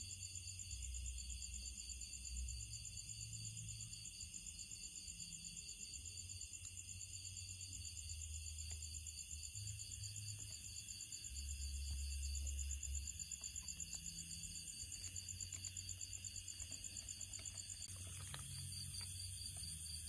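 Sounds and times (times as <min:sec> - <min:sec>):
crickets and insects trilling: 0:00.0 - 0:20.0.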